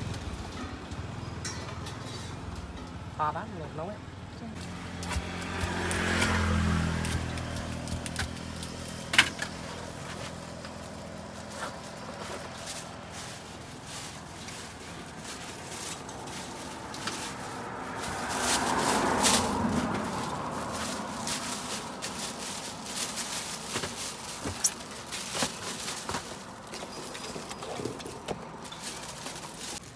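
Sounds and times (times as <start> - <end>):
vehicle passing: 4.4 - 24.9
plastic bag crinkling: 7.4 - 29.9.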